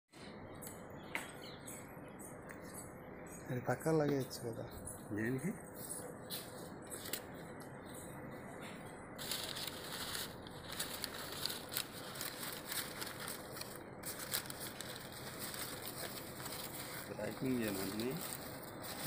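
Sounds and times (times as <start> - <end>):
packing paper crinkling: 6.9 - 7.4, 9.2 - 19.0.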